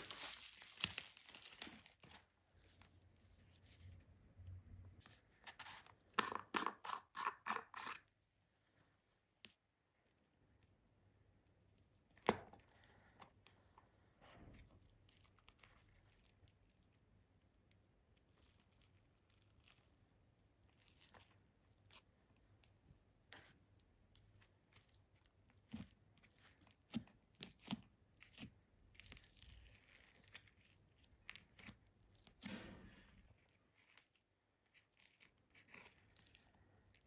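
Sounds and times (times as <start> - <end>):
seal peeling and rustling: 0.0 - 2.4.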